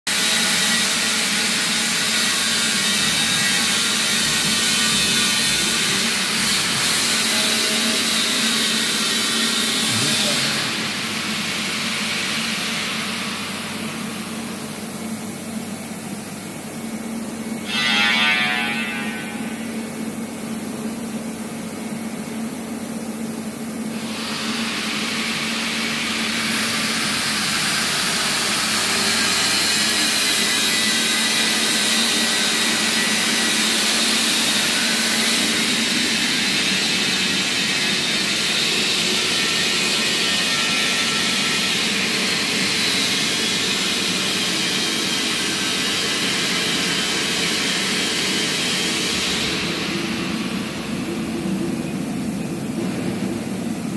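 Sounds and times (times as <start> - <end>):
machining centre hiss and whine: 0.1 - 53.9
low machine hum: 31.8 - 53.9.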